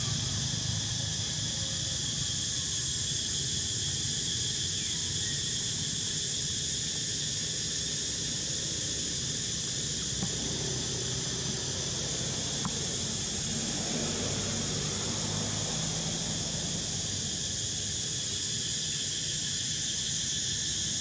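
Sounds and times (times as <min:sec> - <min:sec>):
high-pitched insect chorus: 0:00.0 - 0:21.0
low steady rumble: 0:08.4 - 0:17.8.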